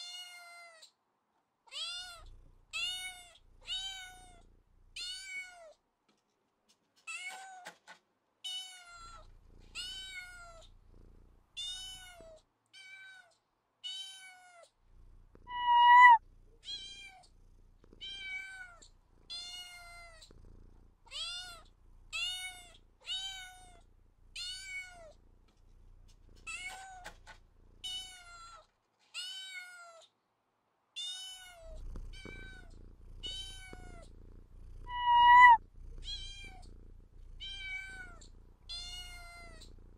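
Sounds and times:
cat meowing: 0:15.5 - 0:17.2, 0:34.8 - 0:36.6.

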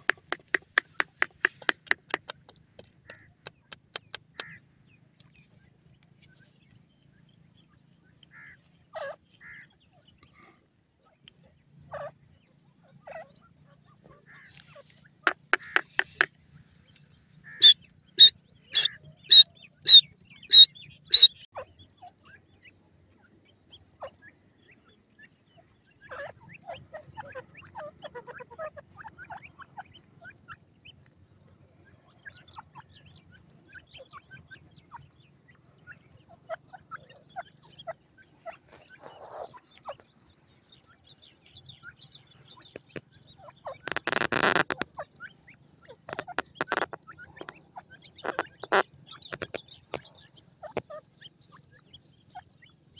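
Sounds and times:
soft bird chirping: 0:00.0 - 0:52.9
bird calling shrill notes: 0:17.5 - 0:21.5.

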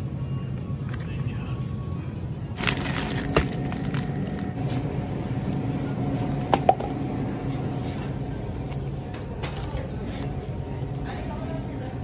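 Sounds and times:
freezer hum: 0:02.5 - 0:12.0.

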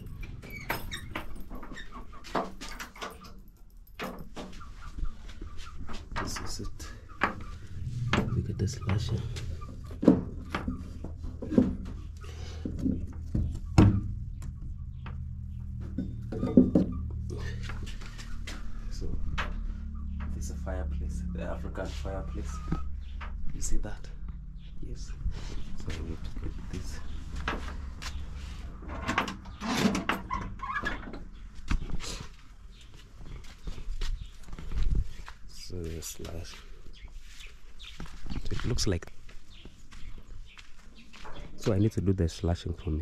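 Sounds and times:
low steady hum: 0:06.4 - 0:29.6
objects knocking and thumping: 0:07.2 - 0:17.0.

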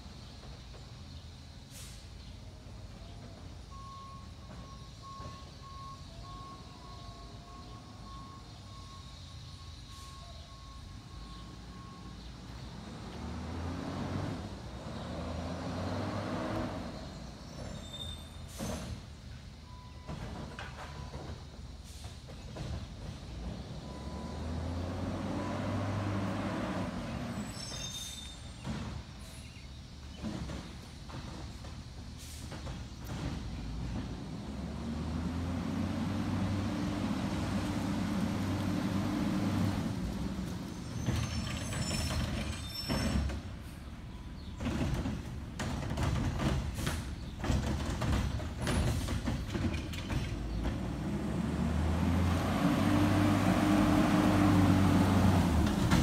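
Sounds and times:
garbage truck engine drone: 0:00.0 - 0:56.0
air hiss: 0:01.6 - 0:02.2
truck backup alarm beeping: 0:02.8 - 0:12.9, 0:19.6 - 0:21.8, 0:23.7 - 0:28.6
high brake squeal: 0:03.4 - 0:12.5, 0:16.7 - 0:22.2, 0:23.8 - 0:29.8, 0:40.4 - 0:44.5.

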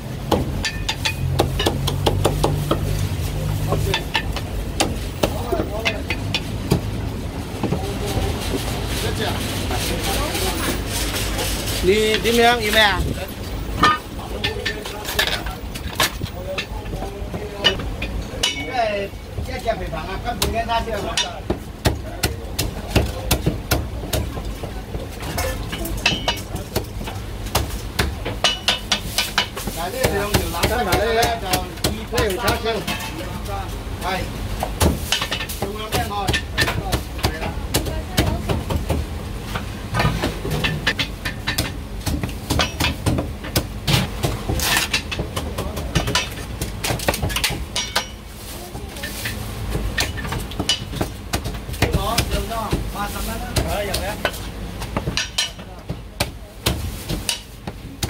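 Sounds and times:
cleaver chopping on wooden block: 0:00.2 - 0:02.9.

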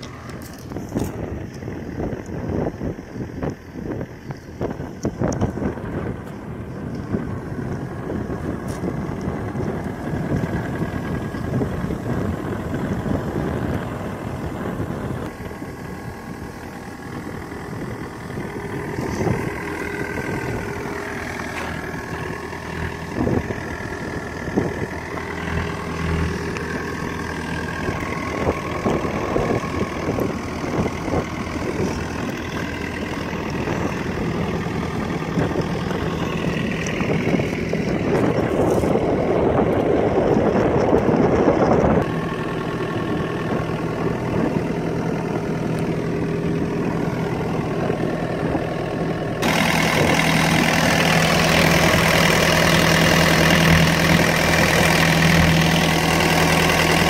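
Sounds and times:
excavator diesel engine idling: 0:00.0 - 0:57.0.

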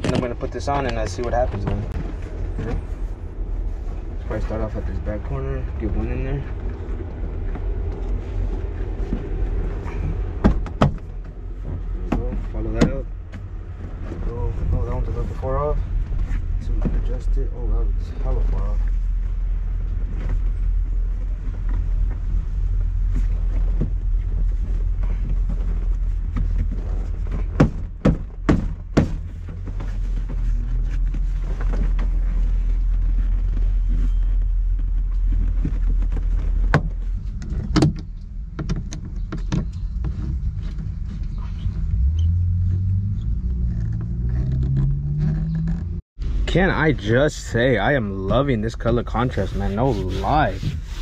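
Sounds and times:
motor vehicle rumble: 0:00.0 - 0:51.0
engine note rising: 0:41.5 - 0:46.9.

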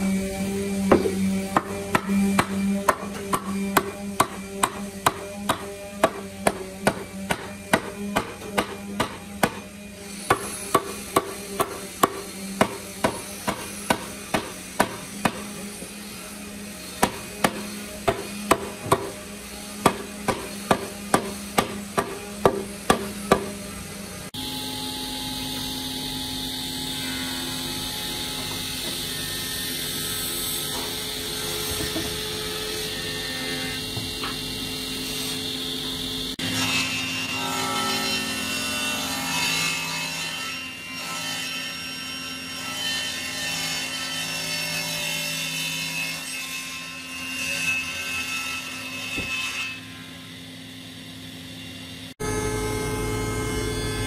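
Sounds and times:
table saw running: 0:00.0 - 0:40.4, 0:49.5 - 0:54.0
hammer striking wood: 0:00.8 - 0:15.9, 0:17.0 - 0:19.2, 0:19.8 - 0:23.6
steady machine hum: 0:50.6 - 0:54.0.

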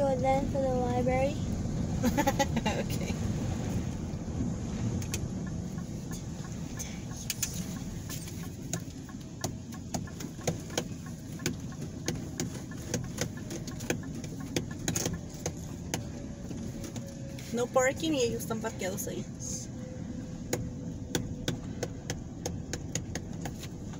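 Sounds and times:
engine and tyre rumble: 0:00.0 - 0:23.9.

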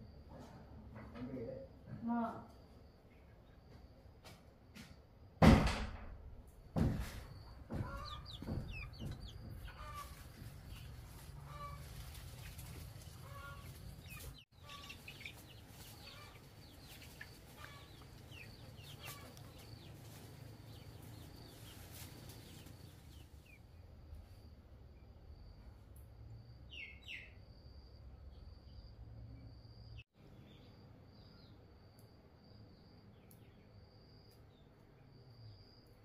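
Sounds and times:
birds chirping: 0:07.0 - 0:23.8
chickens clucking: 0:07.6 - 0:23.6.

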